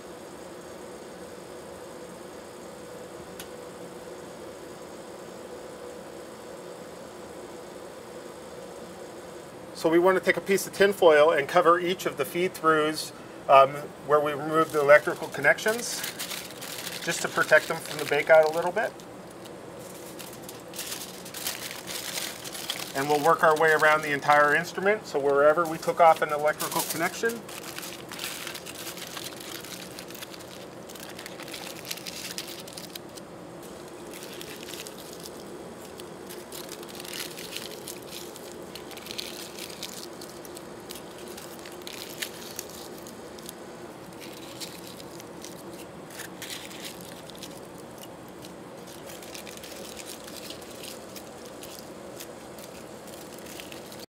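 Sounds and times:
faint steady hum: 0:00.0 - 0:54.0
aluminium foil crinkling: 0:14.2 - 0:54.0.

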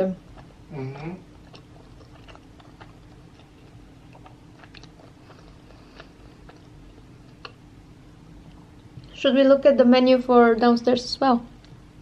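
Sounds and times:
faint steady hum: 0:00.0 - 0:12.0
chewing close to microphone: 0:00.3 - 0:07.6.

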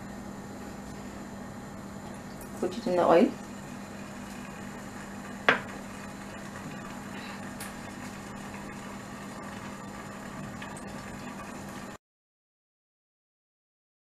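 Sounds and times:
food frying in hot oil: 0:01.0 - 0:12.0.

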